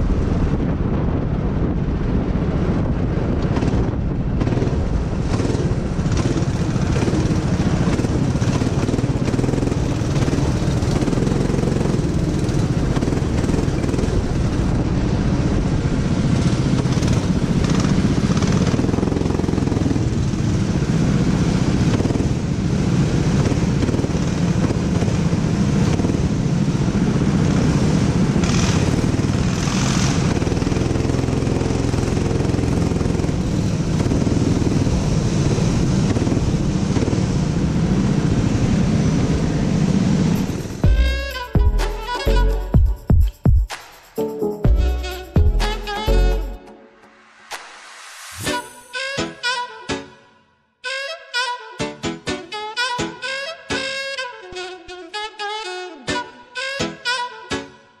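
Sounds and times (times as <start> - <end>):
go-kart engine running: 0.0 - 42.7.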